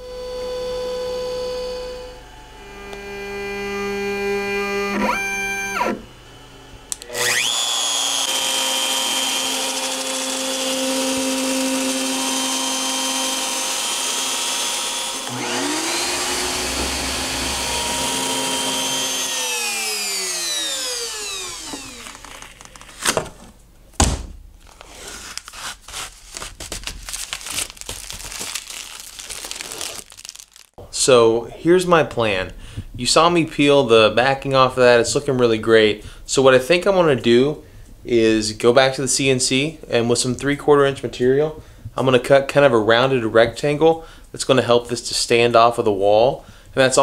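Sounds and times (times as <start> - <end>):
router spindle whine: 0.0 - 22.9
shop vacuum running: 0.0 - 23.3
protective film peeled off: 21.6 - 23.5, 24.6 - 30.8.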